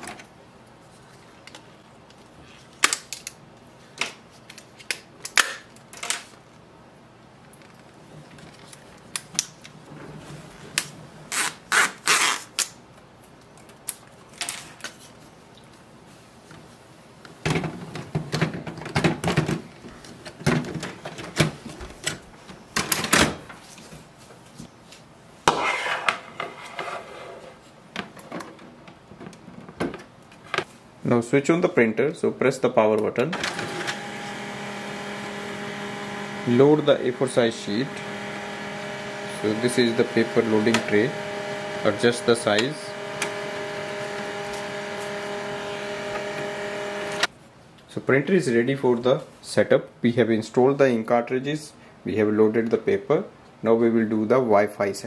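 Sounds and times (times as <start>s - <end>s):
power cord rustling: 33.4s - 47.3s.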